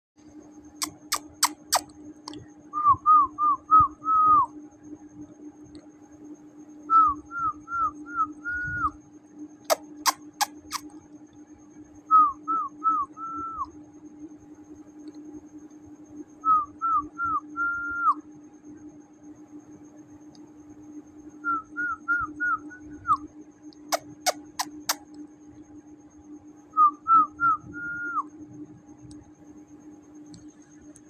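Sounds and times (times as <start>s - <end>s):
steady low hum: 0.2s - 31.0s
sharp snap-like clicks: 0.8s - 2.4s.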